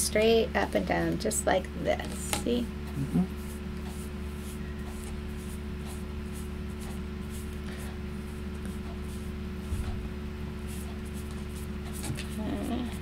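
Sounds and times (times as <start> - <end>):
low hum: 0.0 - 13.0
foam brush strokes on paper: 3.3 - 9.9.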